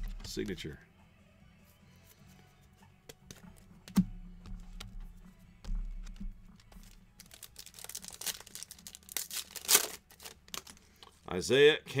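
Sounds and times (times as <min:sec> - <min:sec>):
foil pack tearing and crinkling: 0:06.7 - 0:10.9.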